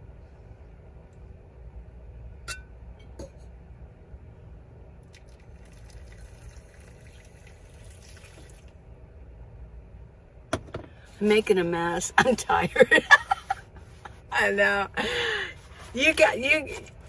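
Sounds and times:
low steady hum: 0.0s - 17.0s
glass carafe clinking: 2.5s - 3.4s
coffee pouring in thin stream: 5.0s - 8.8s.

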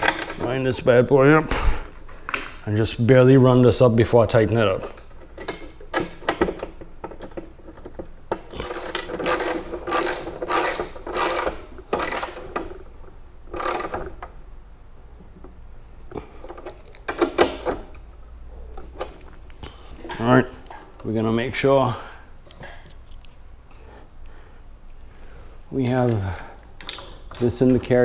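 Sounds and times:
ratchet wrench clicking: 8.5s - 12.6s, 13.5s - 14.0s.

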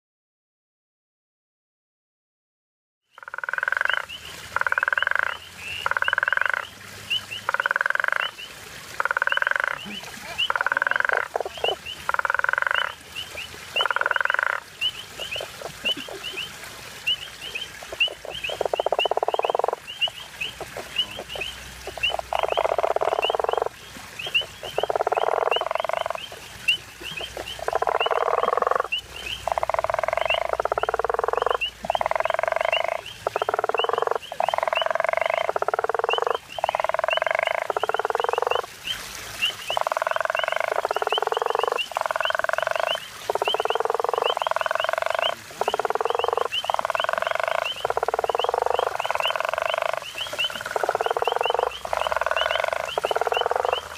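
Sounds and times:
toads snoring calls: 3.2s - 6.7s, 7.5s - 8.4s, 9.0s - 13.0s, 13.8s - 14.6s, 17.8s - 19.8s, 20.6s - 23.7s, 24.7s - 26.2s, 27.2s - 38.7s, 39.8s - 53.9s.

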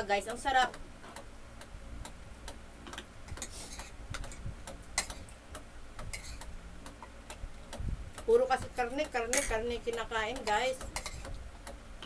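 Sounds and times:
cutlery tapping ceramic plates: 5.0s - 5.2s, 9.3s - 9.7s.

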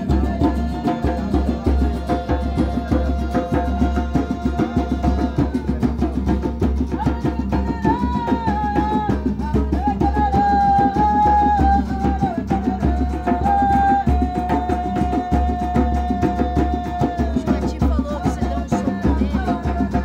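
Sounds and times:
acoustic guitar: 0.0s - 20.0s
hand drum: 0.0s - 20.0s.

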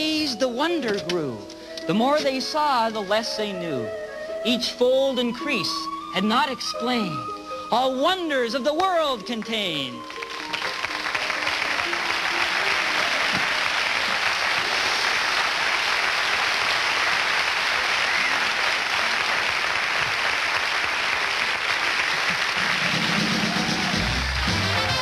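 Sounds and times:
music playing: 0.0s - 19.8s, 20.9s - 25.0s
audience applauding: 9.7s - 25.0s.

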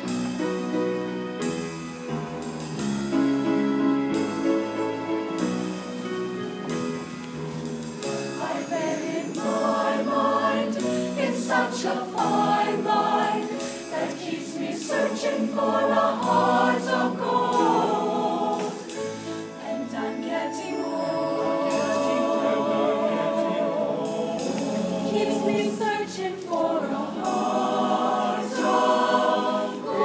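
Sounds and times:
choir singing in harmony: 4.2s - 30.0s.

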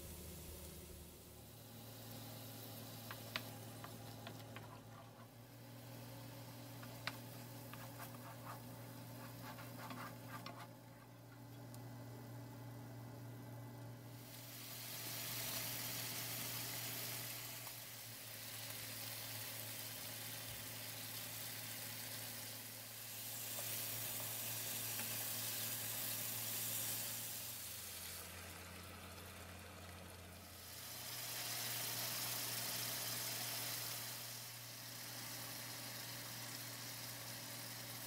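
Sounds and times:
steady low hum: 0.0s - 16.6s
curry sizzling in a pan: 0.1s - 10.6s, 14.1s - 29.6s, 30.4s - 38.0s.

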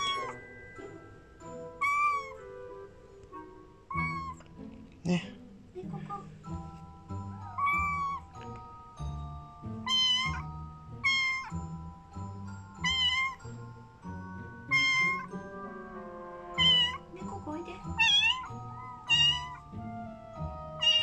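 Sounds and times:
kitten mewing: 0.0s - 0.4s, 1.8s - 2.4s, 3.9s - 4.5s, 7.4s - 8.4s, 9.8s - 11.6s, 12.8s - 13.5s, 14.7s - 15.4s, 16.6s - 17.1s, 17.9s - 19.7s, 20.8s - 21.0s
background music with soft beat: 0.0s - 21.0s.

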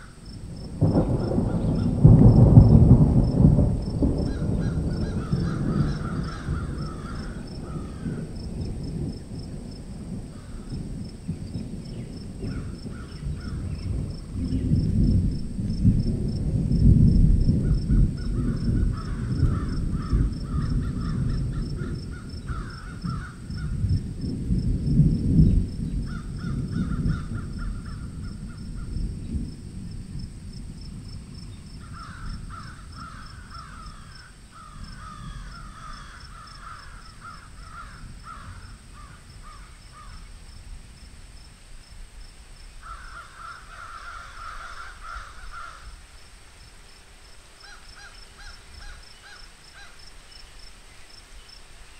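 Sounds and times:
high insect chirping: 0.0s - 51.9s
crows cawing: 1.0s - 2.0s, 4.0s - 8.7s, 10.2s - 10.9s, 12.4s - 13.9s, 17.6s - 23.8s, 26.0s - 29.0s, 31.7s - 40.3s, 42.8s - 46.0s, 47.6s - 50.1s.

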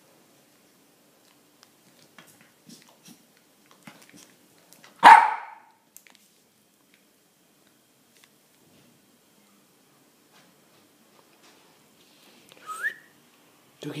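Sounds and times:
small dog barking: 5.0s - 5.7s.

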